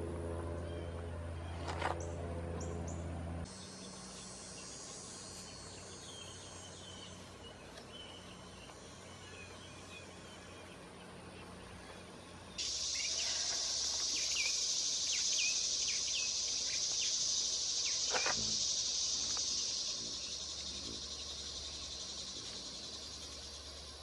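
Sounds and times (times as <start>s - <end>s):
bird chirps: 2.6s - 24.0s
high-pitched insect chorus: 3.4s - 11.2s, 12.6s - 24.0s.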